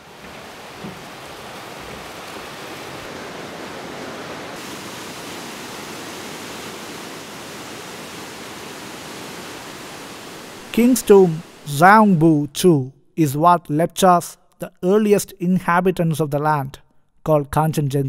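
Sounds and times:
river rushing over rocks: 0.0 - 11.7.

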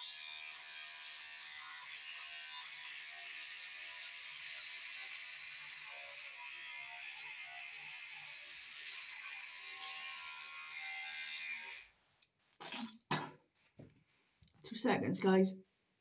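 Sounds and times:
electric toothbrush buzzing: 0.0 - 11.9.

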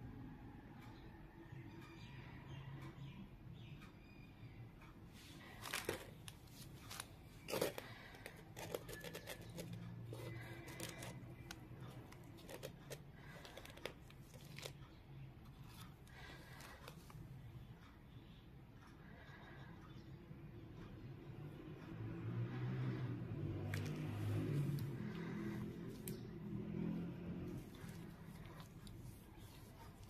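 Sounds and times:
metal tweezers clicking and rustling: 5.5 - 14.9.

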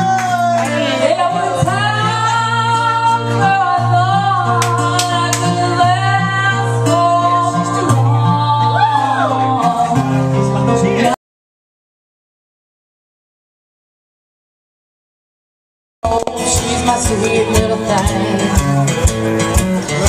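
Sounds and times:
woman singing: 0.8 - 10.2, 16.1 - 19.1
instrumental accompaniment: 16.0 - 20.0.

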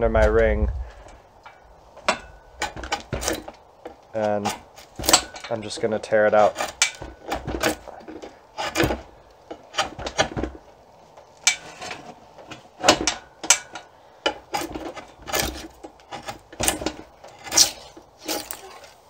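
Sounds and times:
draw knife scraping wood: 6.4 - 10.3, 14.5 - 19.0.

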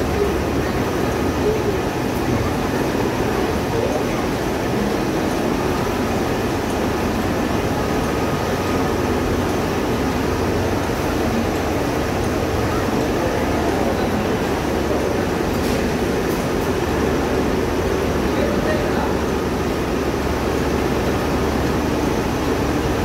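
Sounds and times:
machinery running: 0.0 - 23.0.

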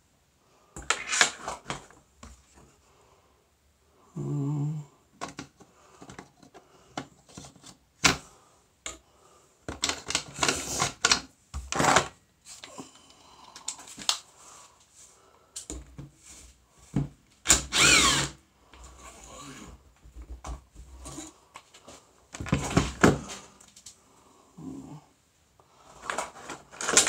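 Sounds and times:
small power screwdriver whirring: 17.5 - 18.4
wire connectors clicking and rattling: 26.0 - 27.0.

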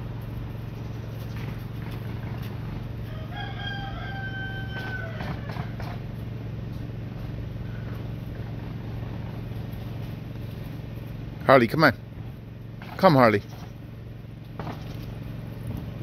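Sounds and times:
low background rumble: 0.0 - 16.0
rooster crowing: 3.0 - 6.0.

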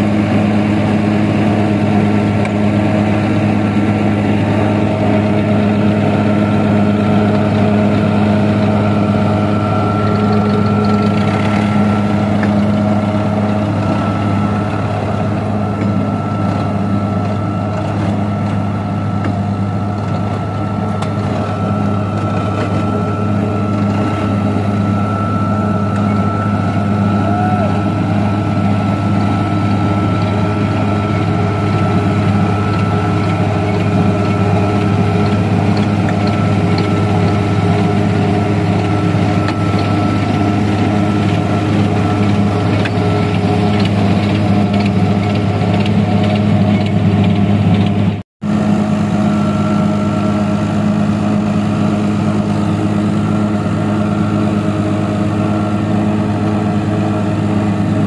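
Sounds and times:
tractor diesel engine running: 0.0 - 58.0
machine wheel clicking and clattering: 31.2 - 48.1.

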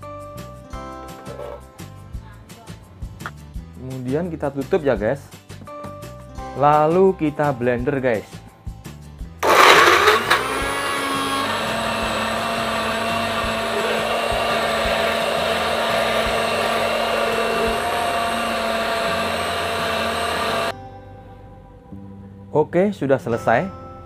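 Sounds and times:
electric blender grinding: 9.4 - 20.7.

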